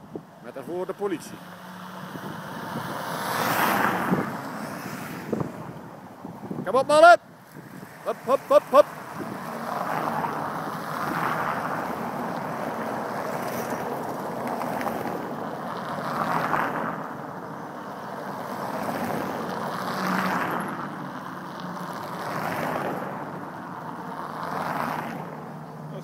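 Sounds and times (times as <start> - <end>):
vehicles passing on road: 0.0 - 26.0
wind on microphone: 2.0 - 15.5.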